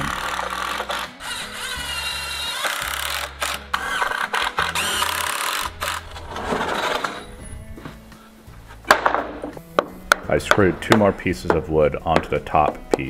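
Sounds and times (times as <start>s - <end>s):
cordless drill driving screws: 0.0s - 7.0s.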